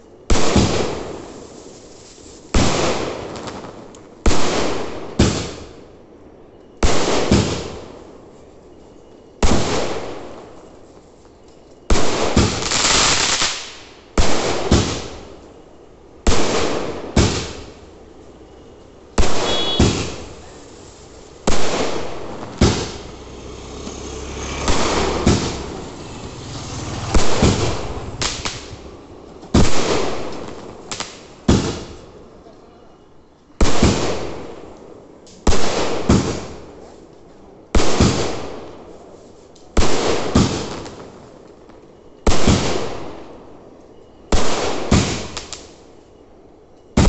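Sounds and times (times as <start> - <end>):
fireworks bangs: 0.3 - 1.5, 2.4 - 5.8, 11.9 - 15.6, 16.2 - 32.2.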